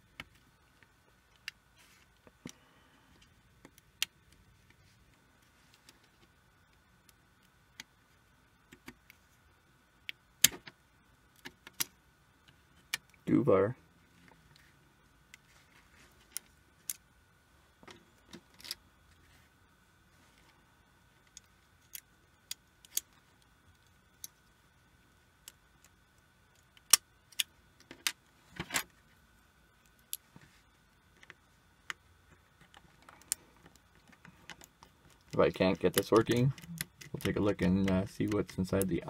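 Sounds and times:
metal pick clicking on connectors: 33.2 - 39.0.

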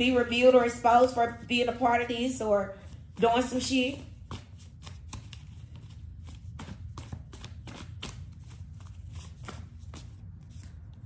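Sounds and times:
low steady hum: 0.0 - 11.0
cards tapping and flicking: 4.2 - 11.0.

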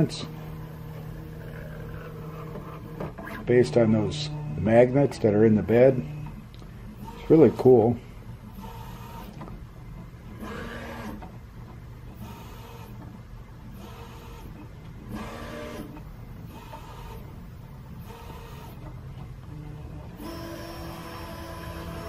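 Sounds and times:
steady low hum: 0.0 - 22.0
stepper motors whirring: 13.8 - 17.3, 19.5 - 22.0.

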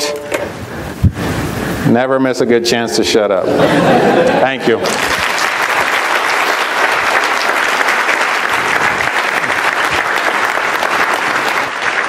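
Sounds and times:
crowd applauding: 3.8 - 12.0.

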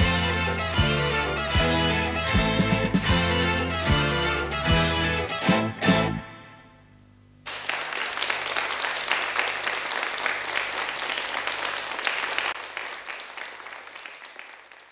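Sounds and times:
audience applauding: 7.4 - 14.9.

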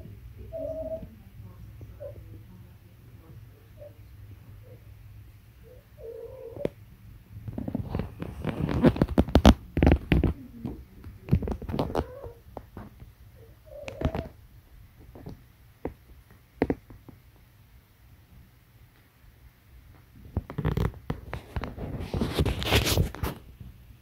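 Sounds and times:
cat rubbing on carpet: 20.6 - 23.5.

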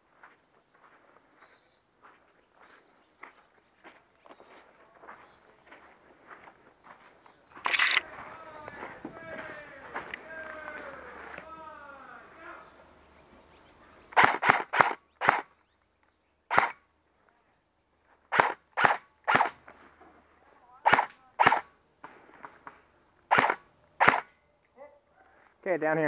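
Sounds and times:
airsoft rifle shots: 7.6 - 8.1, 14.1 - 15.5, 16.5 - 16.8, 18.3 - 19.6, 20.8 - 21.8, 23.3 - 24.4.

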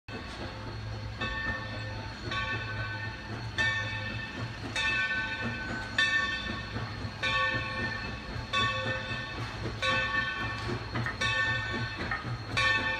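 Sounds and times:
locomotive bell ringing: 0.1 - 12.9
low train rumble: 0.1 - 12.9.

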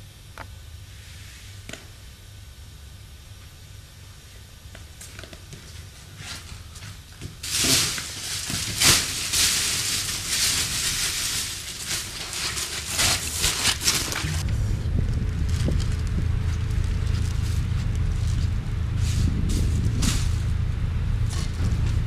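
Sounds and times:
faint low hum: 0.0 - 22.0
plastic bag rustling: 5.6 - 20.6.

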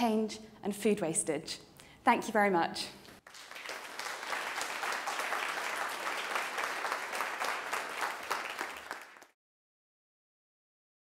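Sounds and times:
audience applauding: 3.2 - 9.4.

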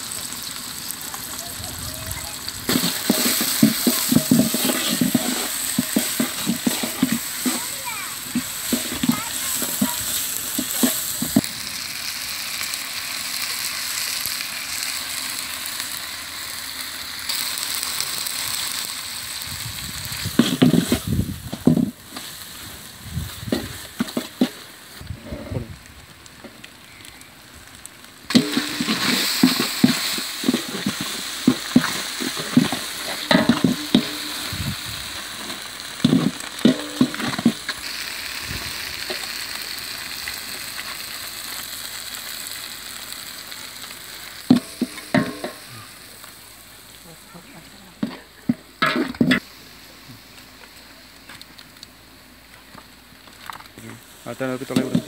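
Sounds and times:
food sizzling in oil: 0.0 - 55.0
metal ladle scraping a pot: 2.7 - 7.6.

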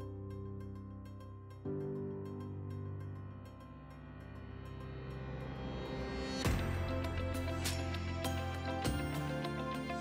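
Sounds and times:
background music: 0.0 - 10.0.

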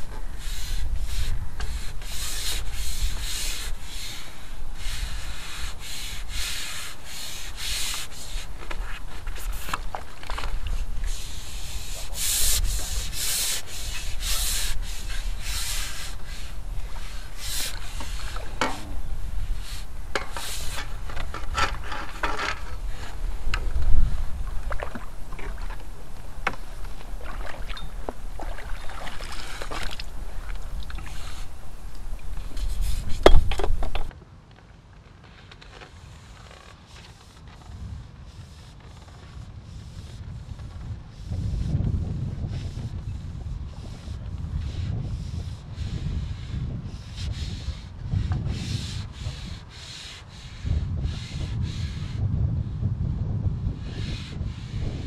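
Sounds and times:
rubbing and scraping: 0.0 - 34.1
wind rumble on microphone: 0.0 - 55.0.

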